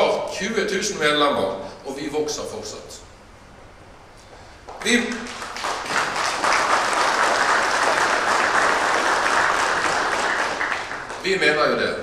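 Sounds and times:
audience applauding: 4.7 - 11.4.

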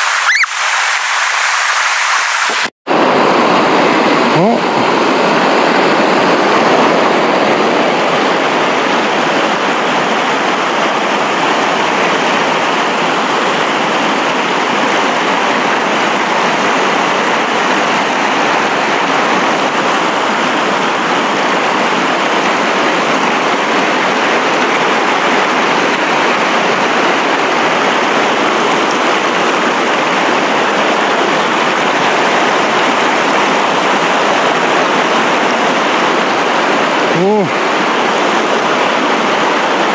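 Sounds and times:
stream rushing over rocks: 0.0 - 39.9.

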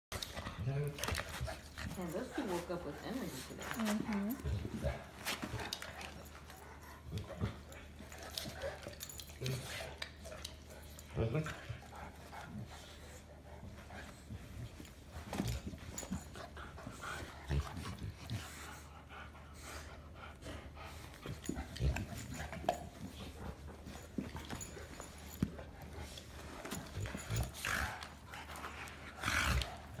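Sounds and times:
dogs mouthing and breathing: 0.1 - 30.0.

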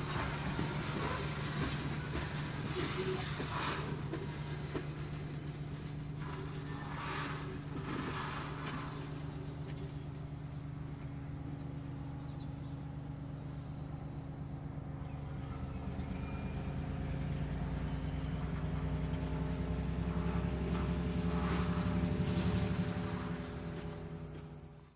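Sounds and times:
wheels rolling on track: 0.0 - 10.2, 16.0 - 24.9.

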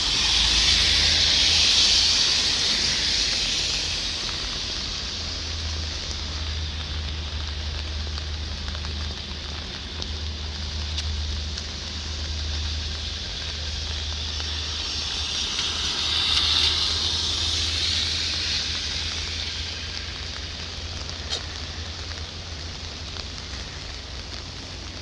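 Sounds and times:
rain on a wet street: 0.0 - 25.0
vehicle passing on wet road: 0.0 - 25.0.

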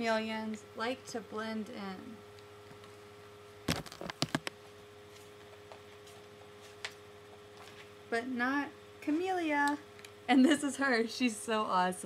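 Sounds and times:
faint electrical hum: 0.0 - 12.0
book pages rustling: 3.7 - 4.5, 7.6 - 7.9.

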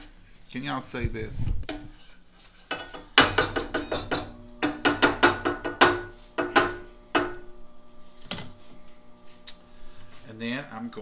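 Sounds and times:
spatula scraping a skillet: 1.9 - 3.1.

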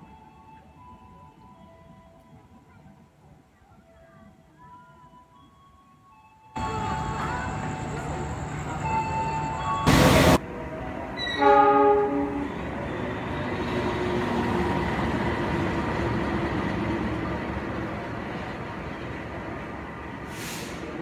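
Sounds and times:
train rumbling past: 6.6 - 21.0
locomotive horn blast: 11.3 - 12.8.

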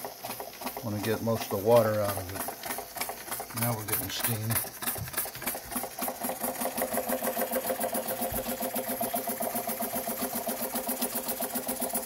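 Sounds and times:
steam engine running: 0.0 - 12.0.

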